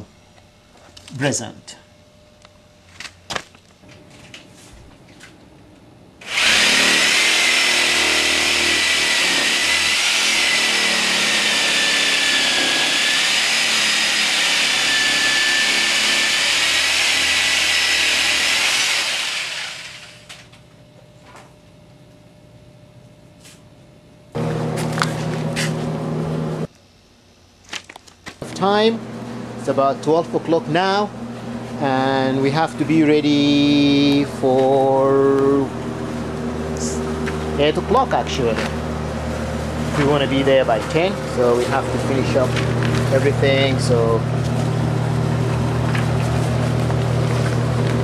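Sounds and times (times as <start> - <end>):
low steady hum: 0.0 - 6.2
electric saw whining: 6.2 - 20.5, 32.9 - 48.0.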